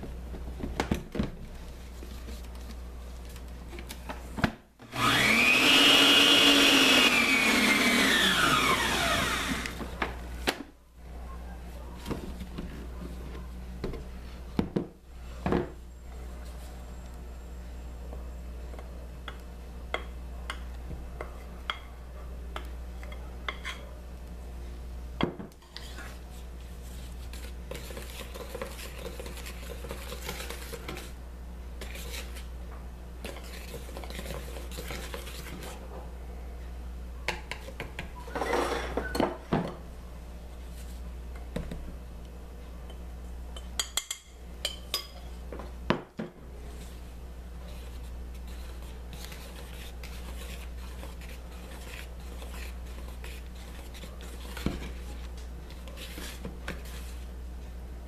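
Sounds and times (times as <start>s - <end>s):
whisk scraping a mixing bowl: 25.6s - 31.2s, 31.8s - 32.5s, 33.3s - 35.8s, 47.6s - 57.3s.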